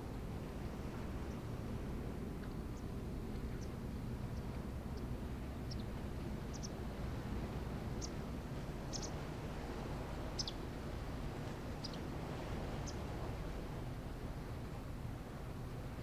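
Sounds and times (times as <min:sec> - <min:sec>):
low rumbling background: 0:00.0 - 0:16.0
small bird chirping: 0:08.9 - 0:09.1, 0:10.4 - 0:10.6.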